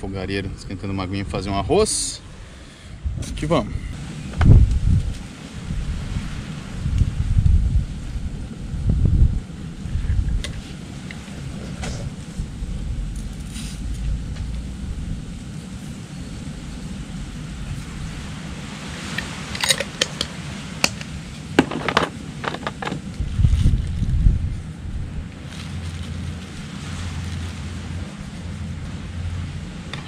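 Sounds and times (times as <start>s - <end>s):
wind rumble on microphone: 0.0s - 30.0s
camping gear clicks and plastic rustling: 19.1s - 24.1s.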